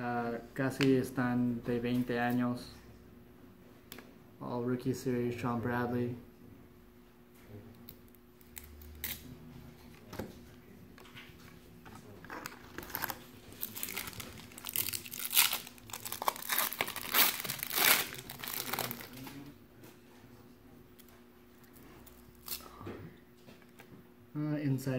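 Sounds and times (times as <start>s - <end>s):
wrapper tearing and crumpling: 12.3s - 19.3s.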